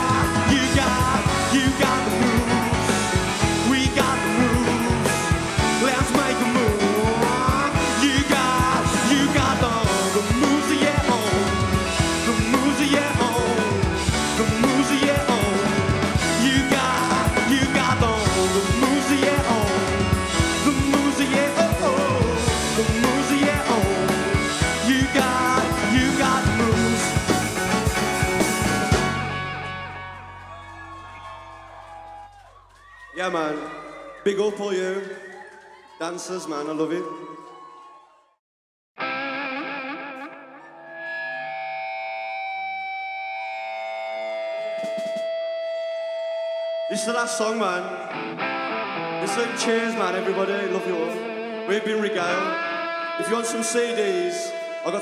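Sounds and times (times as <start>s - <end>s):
person singing: 0.0s - 27.8s, 49.2s - 55.0s
electric guitar: 0.0s - 32.0s, 39.0s - 55.0s
drum kit: 0.0s - 32.1s, 44.6s - 46.0s
bass guitar: 0.0s - 32.8s, 39.0s - 55.0s.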